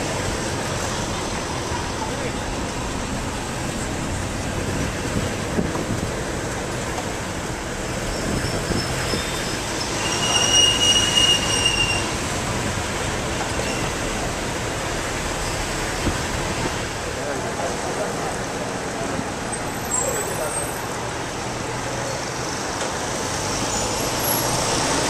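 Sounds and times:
shrill squeal: 8.0s - 12.2s.

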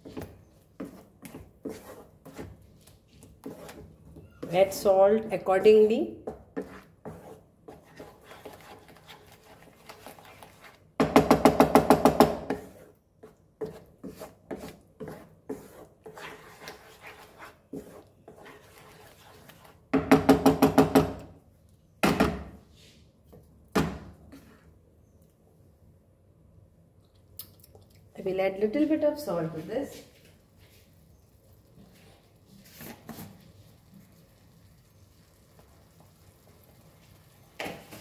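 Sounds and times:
wooden spatula scraping paste in pan: 0.0s - 11.0s, 12.4s - 20.1s, 24.3s - 24.8s, 31.7s - 34.2s.

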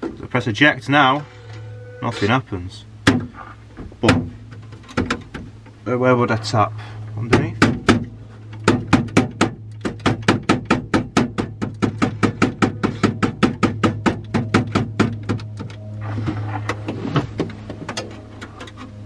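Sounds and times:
steady low hum: 0.0s - 19.0s
scattered knocks: 3.0s - 5.5s, 7.3s - 15.8s.

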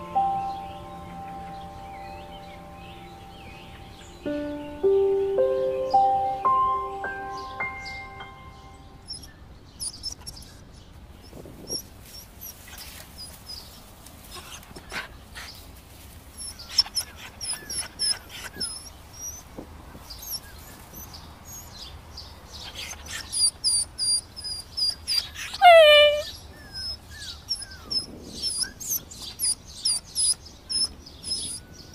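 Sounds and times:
dog whimpering: 16.4s - 19.5s, 22.8s - 31.6s.

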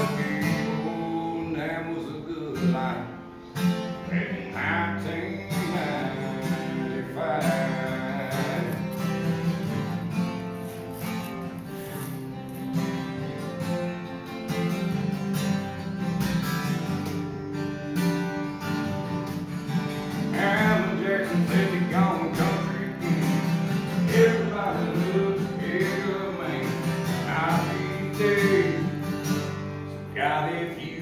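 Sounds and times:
acoustic guitars strumming: 0.0s - 31.0s
wavering guitar melody: 0.0s - 31.0s.

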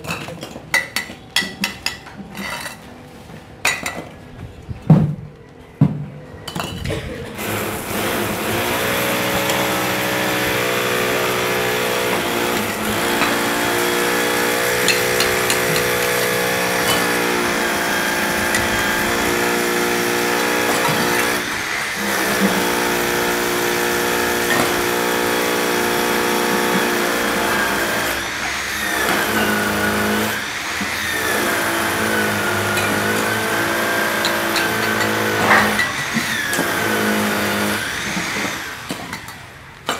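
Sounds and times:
motor running: 7.4s - 38.8s.

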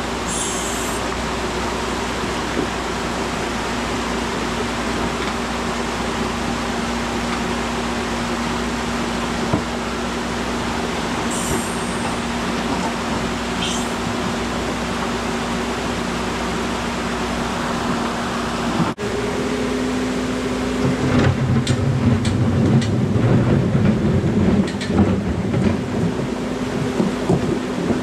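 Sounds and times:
excavator diesel engine and hydraulics: 0.0s - 28.0s.

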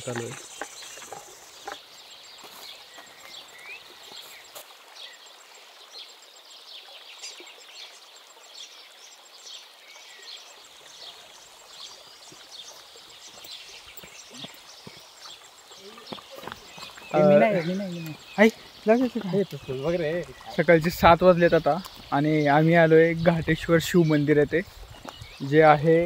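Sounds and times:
forest birds chirping: 0.0s - 26.0s
soft outdoor hiss: 0.0s - 26.0s.

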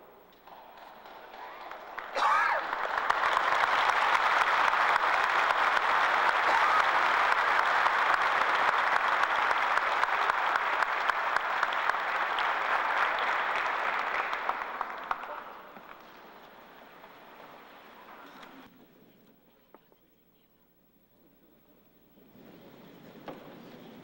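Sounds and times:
congregation applauding: 0.4s - 17.8s.

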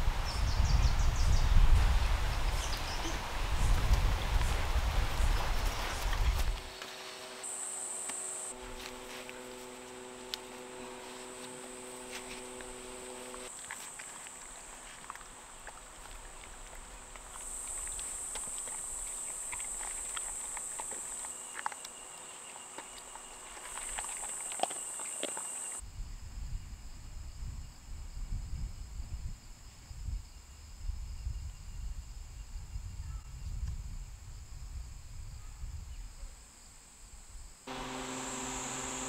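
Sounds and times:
insects buzzing: 2.2s - 25.8s, 37.7s - 39.0s
dog chewing kibble: 12.1s - 25.8s.

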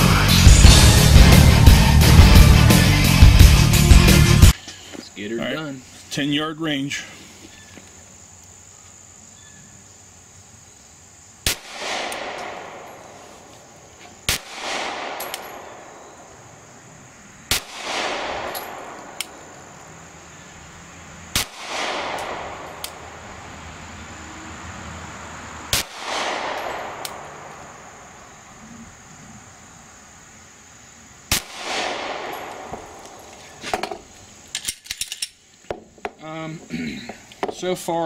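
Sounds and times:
pistol shots: 11.4s - 13.1s, 14.3s - 16.0s, 17.5s - 19.4s, 21.3s - 23.1s, 25.7s - 27.5s, 31.3s - 33.2s
rolling gunshot echo: 11.5s - 12.9s, 14.3s - 15.9s, 17.5s - 19.2s, 21.4s - 22.9s, 25.8s - 27.4s, 31.3s - 33.2s.

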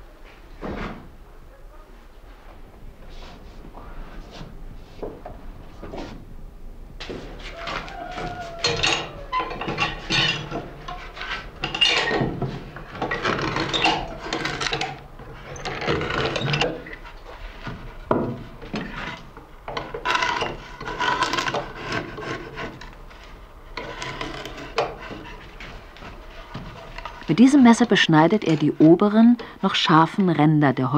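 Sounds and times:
knife scraping wood: 9.6s - 27.6s.

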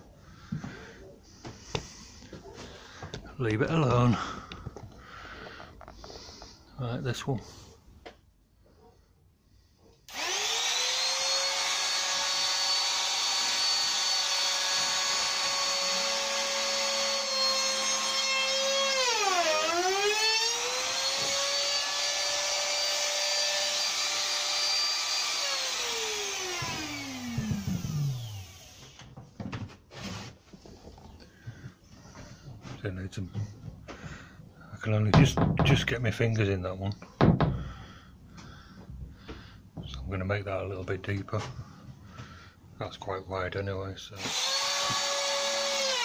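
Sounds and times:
router cutting into wood: 10.1s - 29.1s, 44.2s - 46.0s
trim router whining: 10.1s - 29.2s, 44.2s - 46.0s.

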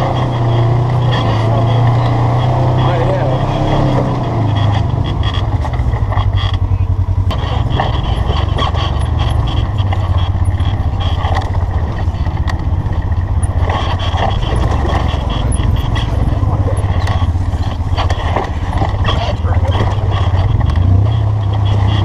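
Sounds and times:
engine running at low speed: 0.0s - 22.0s.

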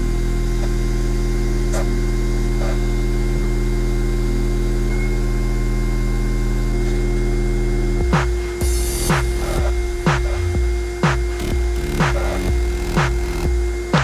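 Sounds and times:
low electronic drone: 0.0s - 14.0s
drum beat: 8.0s - 14.0s.

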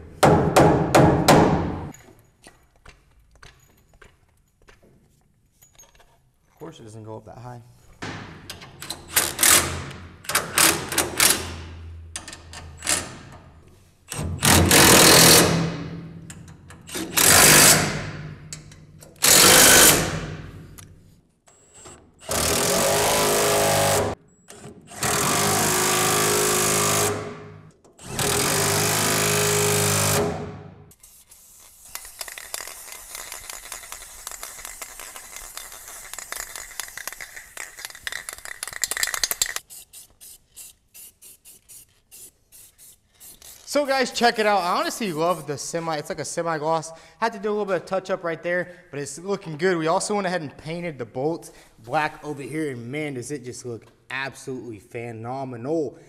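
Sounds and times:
cordless power tool driving bolts: 8.0s - 11.6s, 14.1s - 20.4s, 21.5s - 30.6s.

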